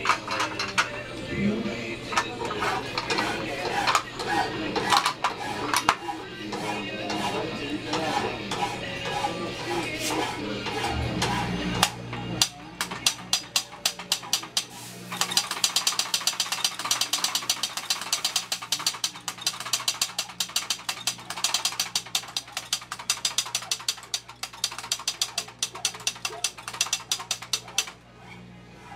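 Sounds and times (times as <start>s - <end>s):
hand-cranked gun clicking: 11.8s - 28.0s.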